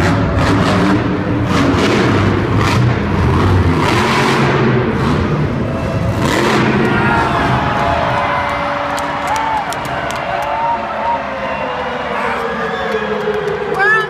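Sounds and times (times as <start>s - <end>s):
truck engine revving: 0.0s - 10.4s.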